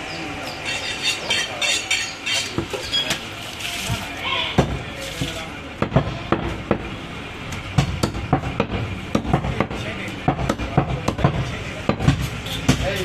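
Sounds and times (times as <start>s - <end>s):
knife chopping meat on wood block: 7.8s - 12.9s.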